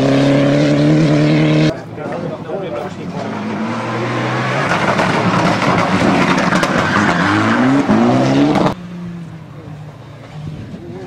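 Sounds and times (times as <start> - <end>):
rally car engine revving: 0.0 - 11.0
tyre noise rushing: 3.0 - 8.8.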